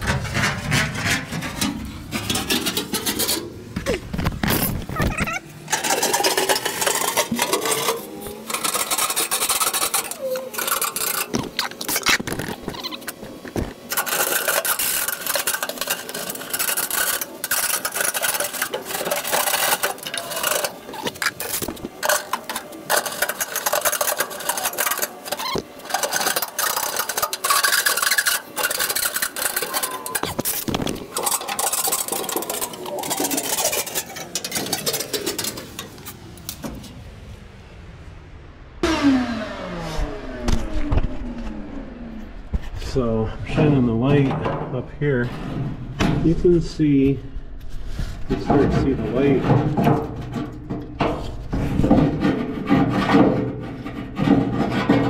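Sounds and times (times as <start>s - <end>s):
brush scraping inside furnace: 0.0s - 37.1s, 42.6s - 55.0s
faint falling whine: 35.7s - 51.9s.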